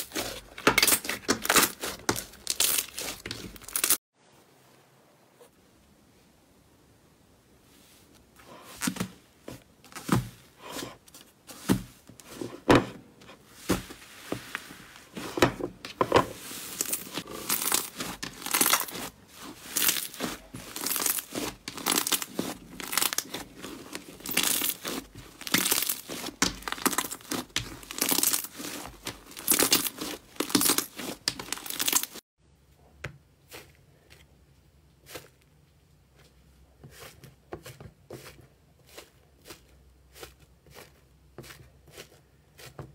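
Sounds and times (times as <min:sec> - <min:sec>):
slime crackling and popping: 0:00.0 - 0:04.0, 0:17.2 - 0:32.2.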